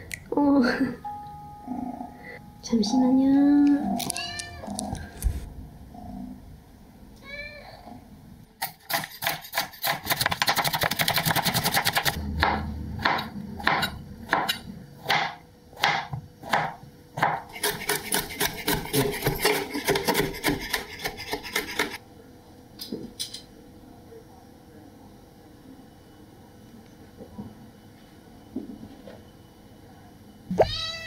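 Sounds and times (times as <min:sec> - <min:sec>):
knife chopping on cutting board: 0:08.6 - 0:22.0.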